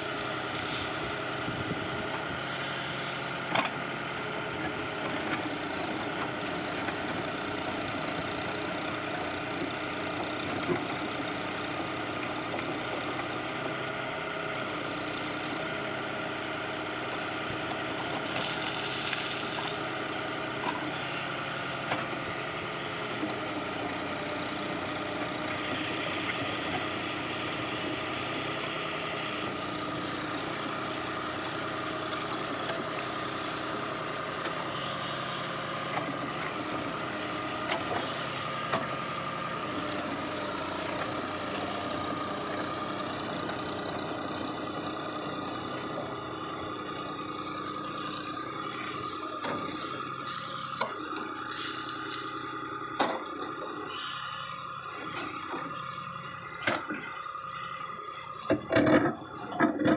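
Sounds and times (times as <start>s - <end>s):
tractor diesel engine running: 0.0s - 59.9s
hydraulic hiss: 2.4s - 3.4s, 51.4s - 52.5s, 53.8s - 54.7s.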